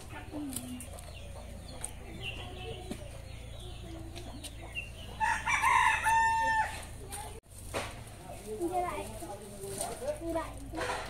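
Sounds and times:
chickens clucking: 0:00.0 - 0:07.4
rooster crowing: 0:05.1 - 0:06.9.

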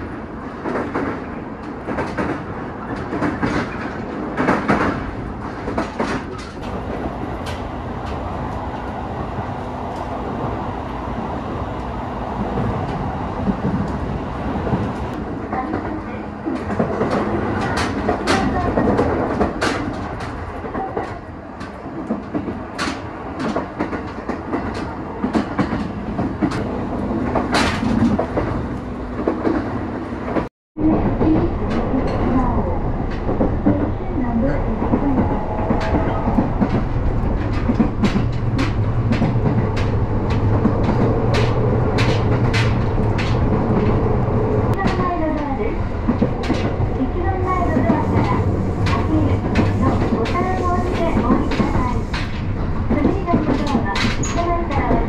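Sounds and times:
train rumble: 0:00.0 - 0:55.0
wheels clacking over rail joints: 0:12.4 - 0:55.0.

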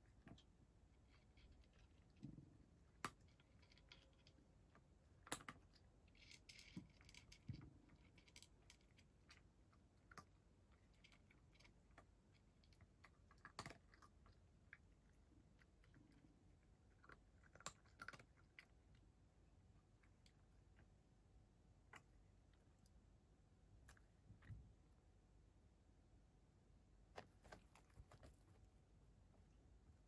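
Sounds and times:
cat crunching dry kibble: 0:01.1 - 0:19.1, 0:27.2 - 0:28.8.

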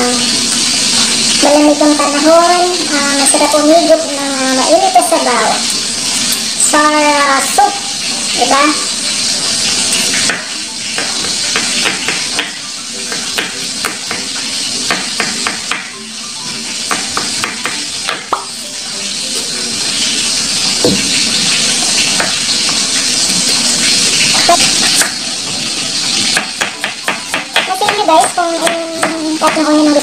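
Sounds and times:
fish sizzling in hot oil: 0:00.0 - 0:30.0
knife tapping on wooden board: 0:10.3 - 0:14.3, 0:14.9 - 0:15.9, 0:16.9 - 0:18.5, 0:26.4 - 0:29.6.

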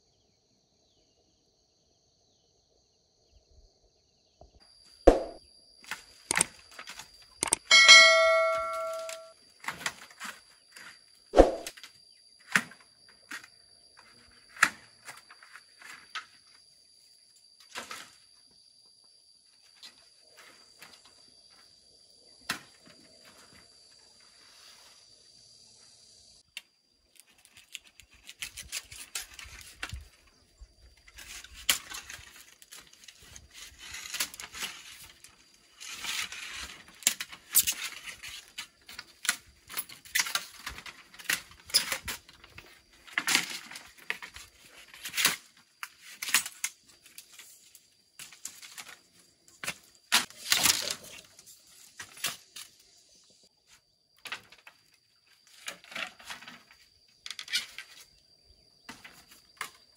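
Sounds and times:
bamboo tearing apart: 0:27.1 - 0:29.9.

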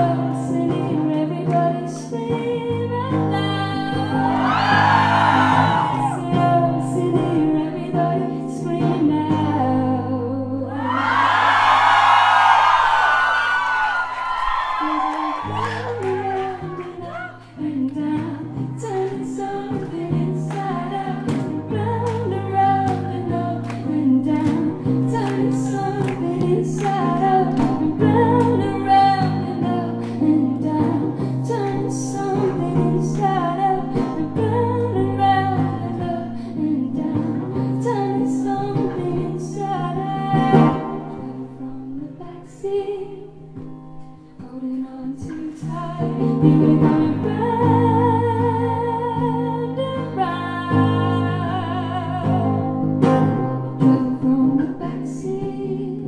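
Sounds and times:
woman singing: 0:00.0 - 0:11.3, 0:14.4 - 0:56.0
strummed acoustic guitar: 0:15.4 - 0:41.7, 0:43.6 - 0:56.0.

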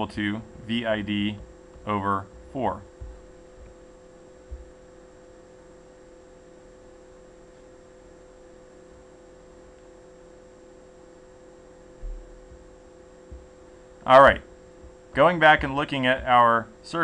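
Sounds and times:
low electrical hum: 0:00.0 - 0:17.0
soft low thump: 0:01.4 - 0:03.8, 0:04.4 - 0:04.8, 0:12.0 - 0:13.6, 0:14.8 - 0:16.4.

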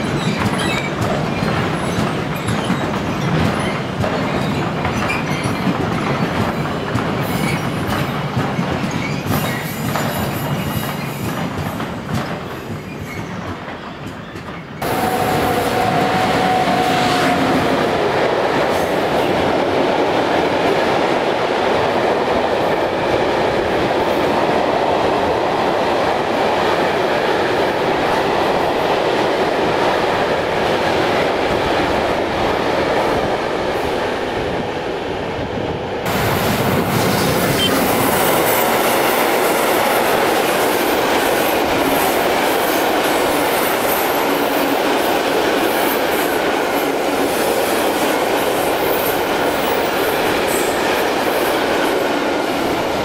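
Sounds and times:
freight train wheels clattering: 0:00.0 - 0:34.8.

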